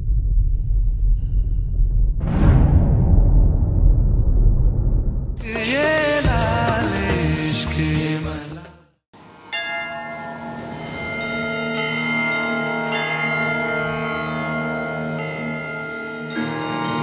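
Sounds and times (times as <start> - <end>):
opening music: 5.4 - 8.7
held chord with bell tones: 9.5 - 17.0.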